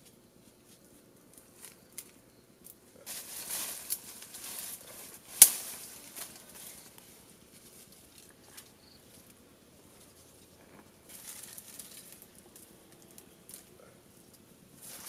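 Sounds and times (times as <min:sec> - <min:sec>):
dry leaves rustling: 0:00.6 - 0:15.0
stick snapping: 0:05.3 - 0:06.4.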